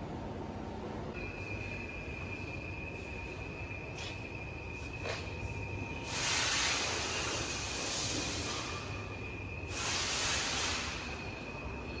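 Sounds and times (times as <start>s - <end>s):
boring machine whine: 0.0s - 12.0s
loud hiss: 6.0s - 9.0s, 9.6s - 11.4s.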